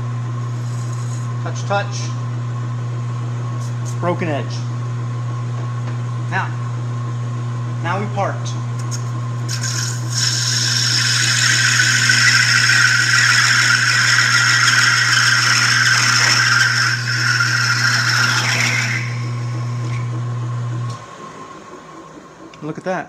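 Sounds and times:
lathe motor hum: 0:00.0 - 0:23.0
tool cutting metal scraping hiss: 0:08.8 - 0:19.2.

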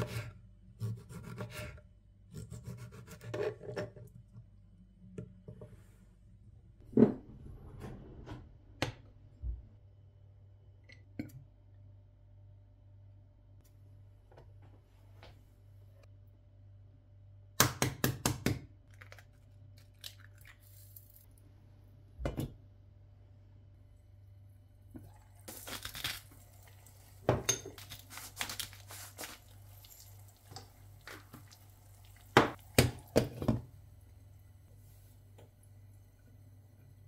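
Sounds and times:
low steady hum: 0:18.7 - 0:37.0
egg frying in butter: 0:25.1 - 0:33.4
salt sprinkling hiss: 0:27.8 - 0:32.2.

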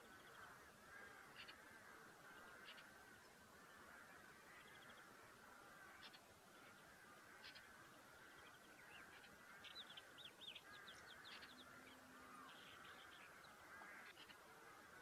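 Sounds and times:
wild birds chirping: 0:00.0 - 0:15.0.

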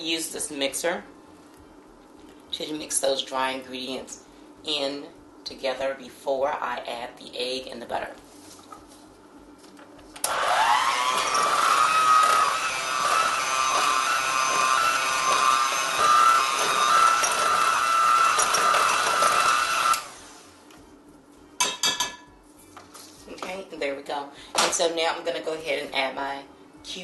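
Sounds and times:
electric hand mixer whining: 0:10.2 - 0:20.5.

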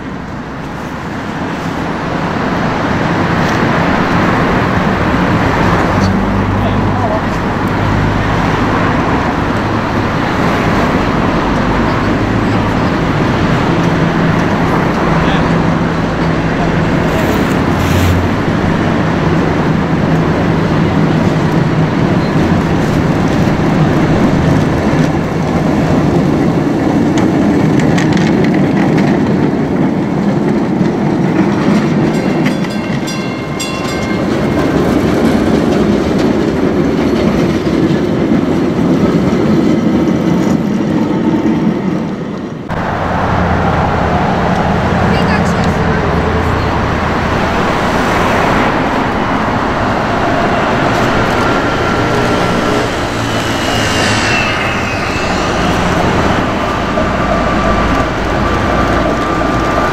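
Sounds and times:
tram wheels clacking on rails: 0:00.0 - 0:59.9
faint high whining tones: 0:52.3 - 0:58.0.

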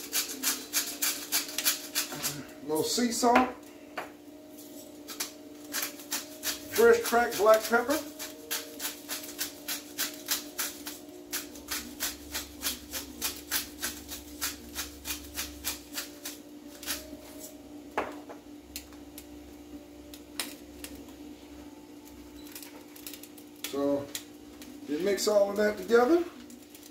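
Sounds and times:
low hum: 0:14.0 - 0:24.8.

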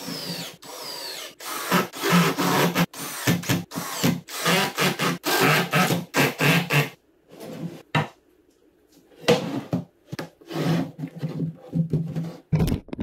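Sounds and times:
drill running: 0:00.0 - 0:05.9.

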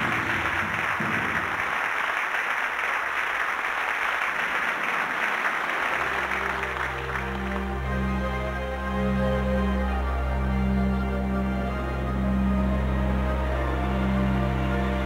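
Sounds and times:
audience applauding: 0:00.0 - 0:08.8
soft music with low held tones: 0:05.9 - 0:15.0.

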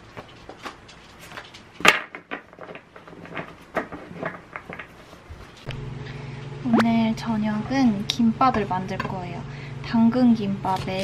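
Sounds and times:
photos and paper rustling: 0:00.0 - 0:05.7
steady low hum: 0:05.3 - 0:11.0.

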